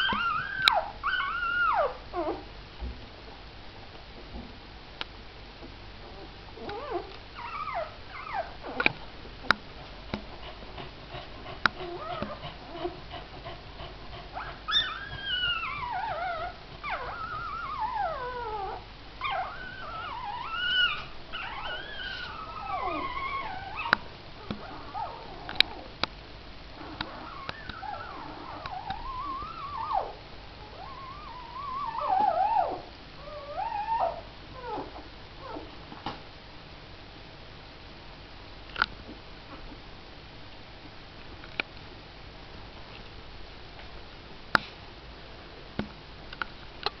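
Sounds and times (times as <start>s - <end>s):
puppies whimpering and squeaking: 0.0s - 2.5s, 6.2s - 9.0s, 11.8s - 13.2s, 14.3s - 25.9s, 26.8s - 35.7s.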